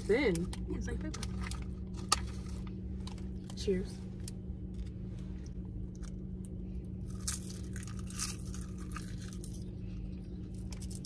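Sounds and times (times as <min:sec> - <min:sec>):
crunching of crisp seaweed snack: 0:06.9 - 0:11.0.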